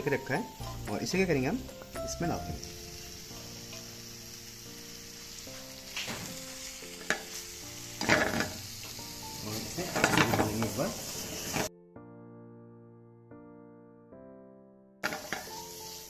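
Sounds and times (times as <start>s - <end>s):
sauce sizzling in frying pan: 0.0s - 11.7s, 15.0s - 16.0s
background music: 0.0s - 16.0s.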